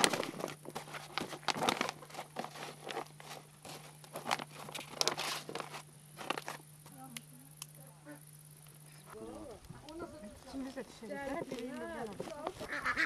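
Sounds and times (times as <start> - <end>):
dried skin bag crackling: 0.0 - 7.1.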